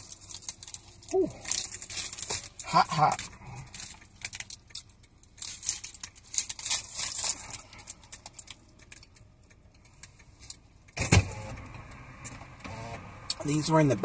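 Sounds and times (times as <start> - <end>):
paper wrapper crinkling: 0.0 - 9.2.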